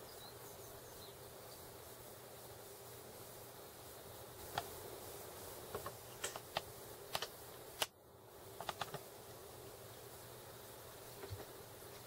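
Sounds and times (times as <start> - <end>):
typing on computer keyboard: 8.6 - 9.0.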